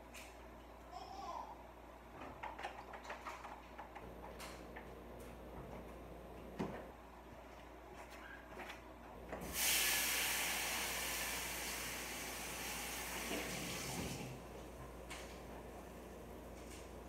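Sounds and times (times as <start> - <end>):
water running from tap: 9.4 - 14.4.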